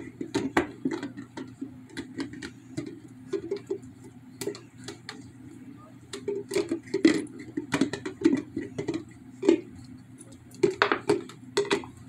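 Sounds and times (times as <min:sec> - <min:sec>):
dog gnawing plastic jar: 0:00.0 - 0:05.4, 0:06.1 - 0:12.0.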